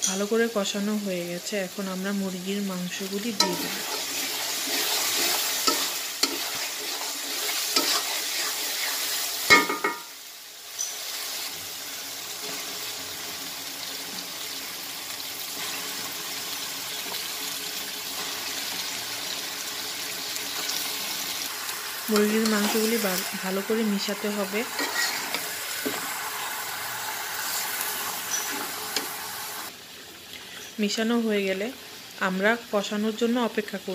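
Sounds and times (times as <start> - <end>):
chicken pieces sizzling: 0.0 - 33.9
spoon scraping sizzling paste: 3.1 - 11.4, 21.5 - 29.7.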